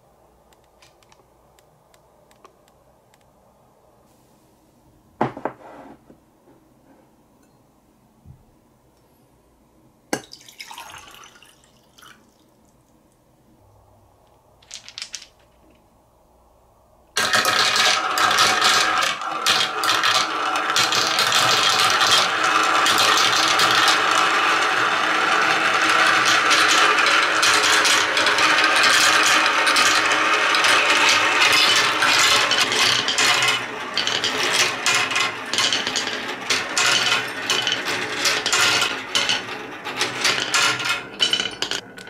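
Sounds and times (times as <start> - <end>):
plastic balls rattling in marble run: 14.6 - 15.6, 17.2 - 42.0.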